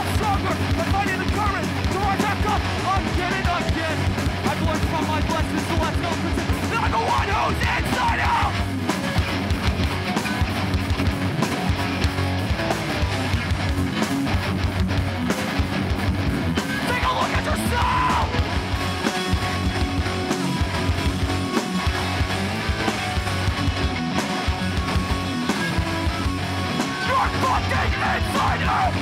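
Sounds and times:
bass guitar: 0.0s - 29.0s
distorted electric guitars: 0.0s - 29.0s
drums: 0.0s - 29.0s.

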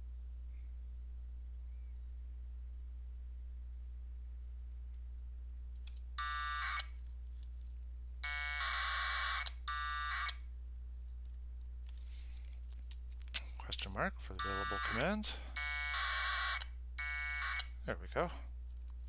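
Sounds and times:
low hum: 0.0s - 19.0s
buzzing radio data tones: 13.6s - 18.4s.

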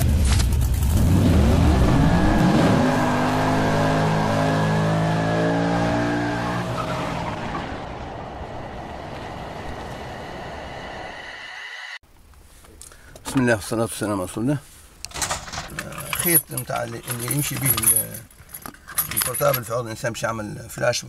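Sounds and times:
car engine revving: 0.7s - 10.7s.

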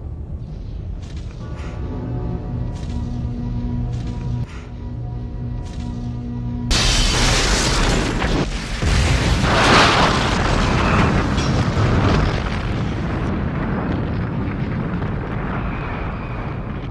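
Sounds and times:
explosion with deep rumble: 6.7s - 16.9s.

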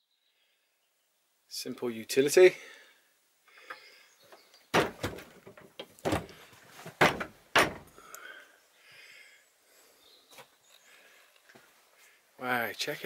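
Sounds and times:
wooden door banging shut: 4.7s - 6.4s, 7.0s - 7.9s
metal latch knocking: 7.0s - 7.9s.

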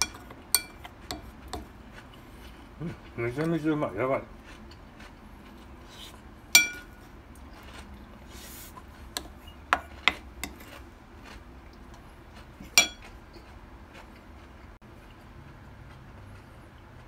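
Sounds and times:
spoon clinking on ceramic plate: 0.0s - 1.7s, 6.6s - 7.0s, 12.8s - 13.0s.

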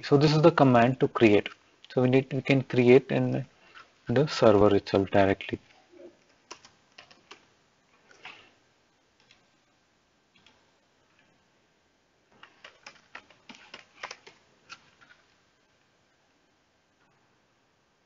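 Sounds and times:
faint keyboard clicks: 6.2s - 8.4s, 9.2s - 9.5s, 10.3s - 11.3s, 12.3s - 15.3s.

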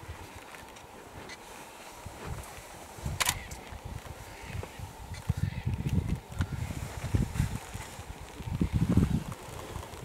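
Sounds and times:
wind buffeting microphone: 1.9s - 10.0s.

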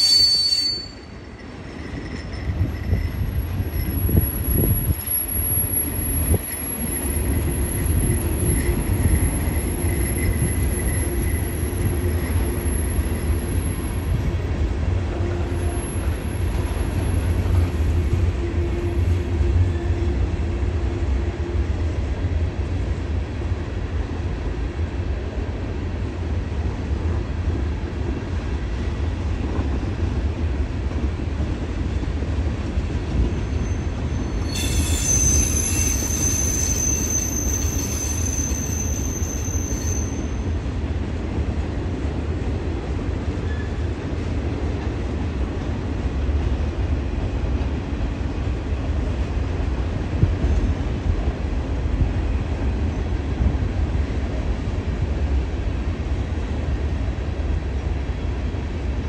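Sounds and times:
high-pitched wheel squeal: 0.0s - 14.0s, 33.4s - 40.4s.

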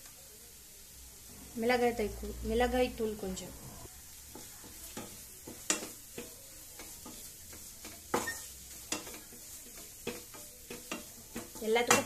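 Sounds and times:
light frying sizzle: 0.0s - 12.0s
spatula clacking on pan: 4.3s - 12.0s
wooden spatula scraping pan: 4.3s - 12.0s.

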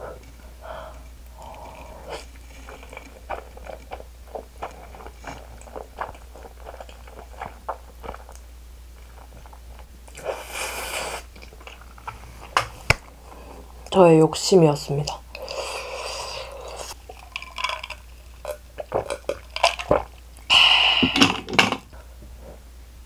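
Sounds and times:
chewing noodles: 0.9s - 12.1s, 15.1s - 20.5s.

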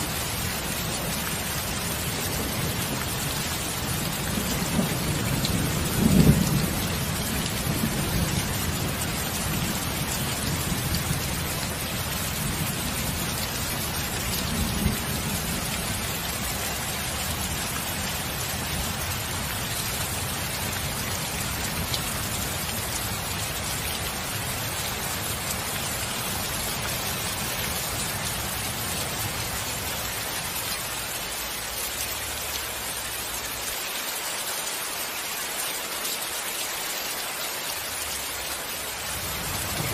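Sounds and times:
heavy rain: 0.0s - 39.9s
rolling thunder rumble: 39.2s - 39.9s.

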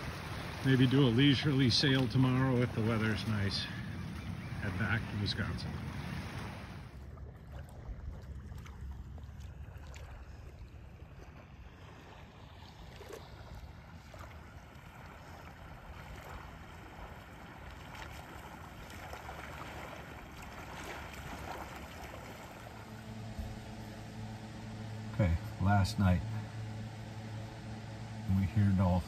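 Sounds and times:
small waves lapping on sand: 0.0s - 29.0s
wind rumble on microphone: 1.7s - 23.9s.

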